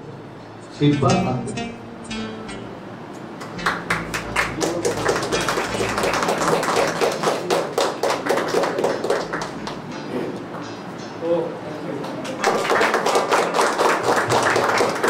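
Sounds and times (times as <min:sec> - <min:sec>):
group clapping: 0:03.4 - 0:10.4, 0:12.0 - 0:15.0.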